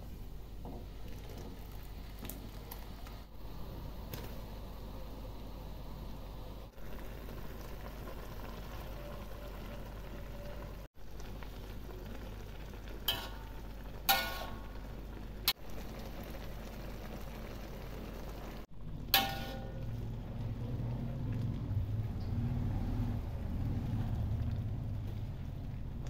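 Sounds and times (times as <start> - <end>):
liquid boiling in wok: 0.0 - 26.0
metal spatula striking wok: 13.1 - 14.7, 19.1 - 20.0.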